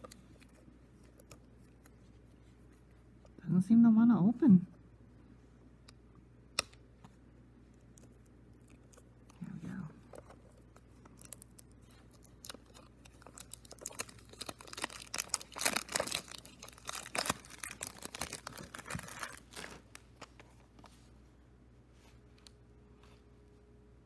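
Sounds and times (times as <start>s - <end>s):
cellophane tearing and crinkling: 10.3s - 20.3s.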